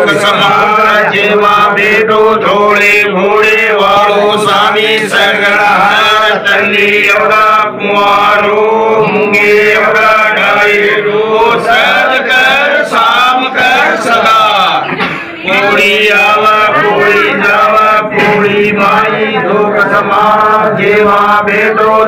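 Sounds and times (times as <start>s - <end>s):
man chanting a prayer: 0.0s - 11.8s, 12.8s - 22.0s.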